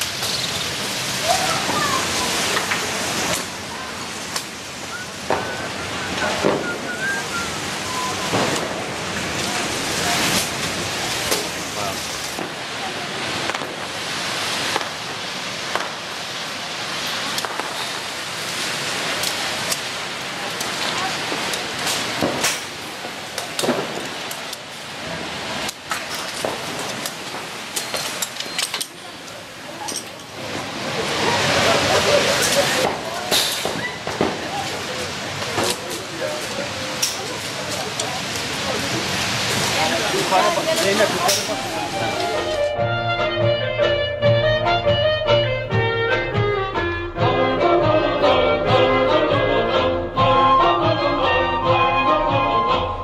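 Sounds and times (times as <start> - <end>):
rockets hissing overhead: 0.0 - 42.6
short wavering whistles: 4.9 - 8.3
sharp cracks: 8.3 - 9.5, 17.1 - 18.0, 21.5 - 24.7.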